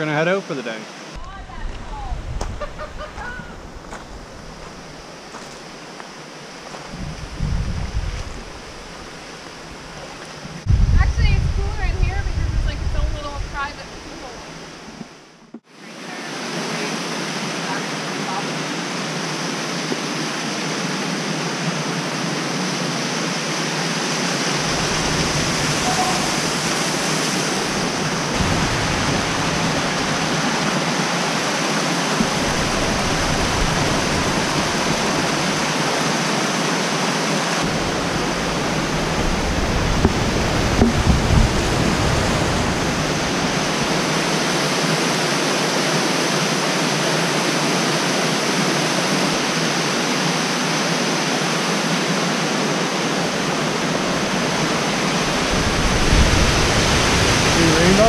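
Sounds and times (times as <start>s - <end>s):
low rumbles: 1.2s - 5.7s, 6.9s - 14.3s, 37.6s - 44.0s
waterfall rushing: 15.7s - 58.0s
soft thumps: 39.9s - 41.8s.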